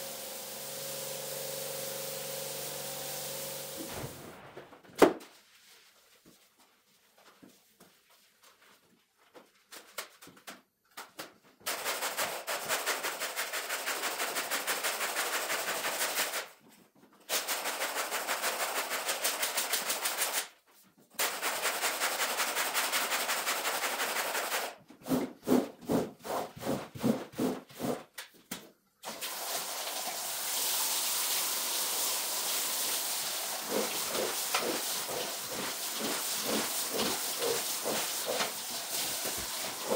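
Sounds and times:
brush scrubbing a wet rug: 32.8 - 39.9.

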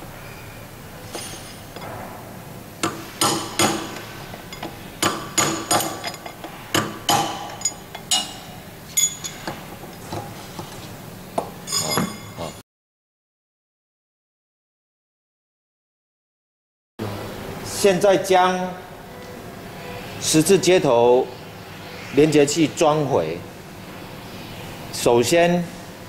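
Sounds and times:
hammer striking metal: 2.8 - 9.5.

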